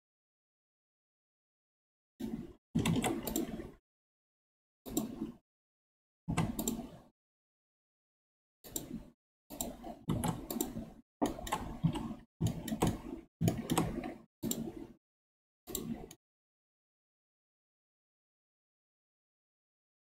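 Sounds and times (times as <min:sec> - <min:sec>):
keyboard and mouse clicking: 0:02.2 - 0:03.8, 0:04.9 - 0:05.4, 0:06.3 - 0:07.0, 0:08.7 - 0:14.9, 0:15.7 - 0:16.2.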